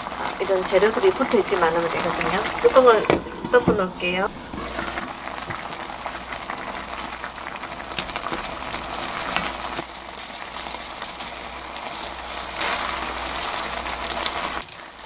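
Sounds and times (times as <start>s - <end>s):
sauce bubbling and crackling: 0.0s - 15.0s
wooden spoon scraping pan: 2.2s - 5.1s.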